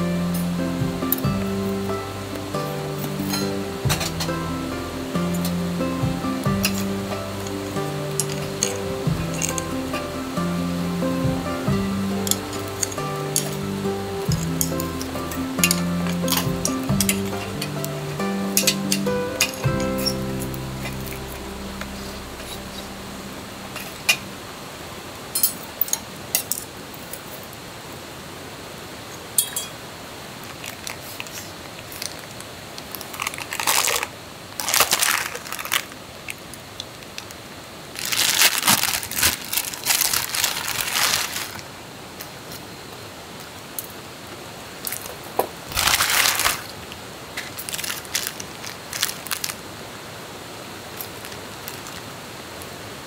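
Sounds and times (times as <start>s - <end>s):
rustling and crinkling material: 30.5s - 42.7s, 44.8s - 49.7s.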